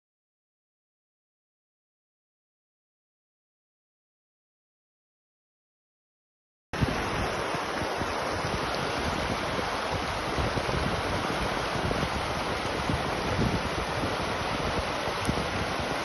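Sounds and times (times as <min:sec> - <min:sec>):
stream rushing over rocks: 0:06.8 - 0:16.0.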